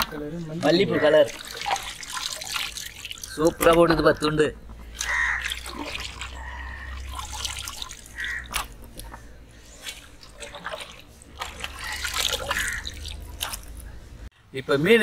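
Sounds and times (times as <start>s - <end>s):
water dripping: 0.0s - 9.2s, 9.8s - 14.0s
wet fish slapping on tray: 4.9s - 6.5s, 7.1s - 9.2s, 9.8s - 13.9s.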